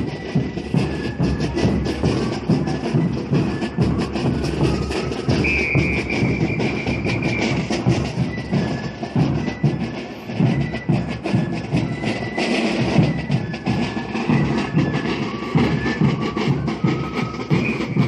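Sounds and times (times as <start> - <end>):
high whistle-like note: 0.0 - 18.0
marching band drums: 0.0 - 18.0.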